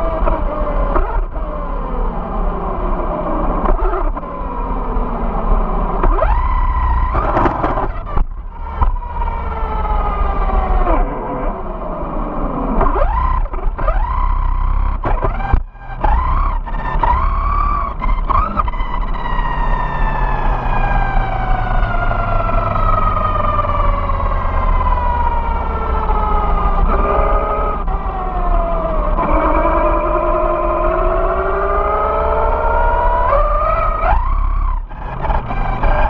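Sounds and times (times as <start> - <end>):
electric motor and gears whining: 0.0 - 36.0
tyres rumbling on pavement: 2.8 - 36.0.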